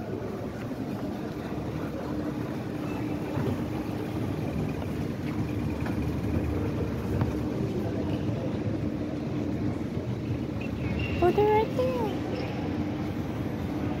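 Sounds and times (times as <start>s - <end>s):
moving walkway rumbling: 0.0s - 14.0s.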